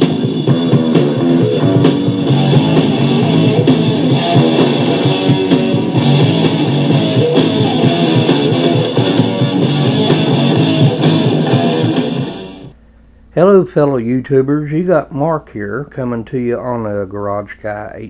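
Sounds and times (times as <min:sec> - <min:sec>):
guitar background music: 0:00.0 - 0:12.8.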